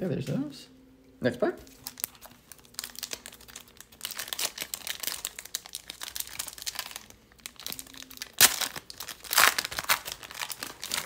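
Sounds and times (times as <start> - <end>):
foil wrapper tearing and crinkling: 1.7 - 11.0.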